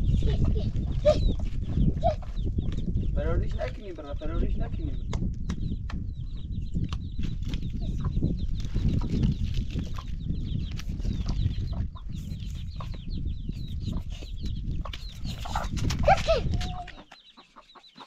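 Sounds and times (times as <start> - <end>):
chicks cheeping: 0.0 - 18.0
hen clucking: 0.1 - 2.8, 11.0 - 18.0.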